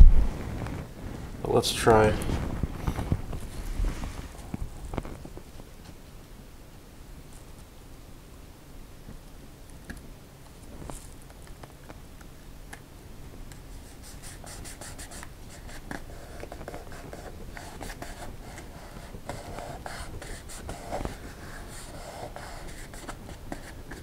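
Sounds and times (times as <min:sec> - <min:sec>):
fingertips rubbing vinyl: 0:13.6 - 0:24.0.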